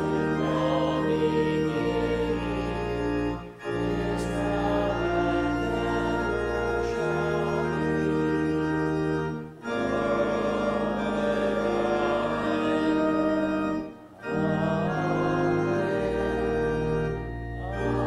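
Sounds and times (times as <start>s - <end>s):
church organ chords: 0.0s - 18.0s.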